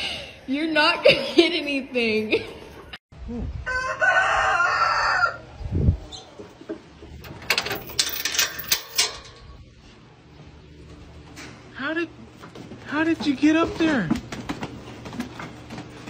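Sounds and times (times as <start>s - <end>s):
rooster crowing: 3.6s - 6.2s
metal chain rattling against gate: 7.2s - 9.8s.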